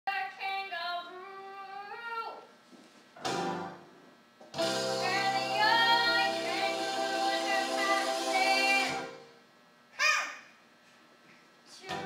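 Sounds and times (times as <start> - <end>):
held melodic phrase with pitch glides: 4.6 - 9.3
sustained chords with melody: 4.6 - 9.4.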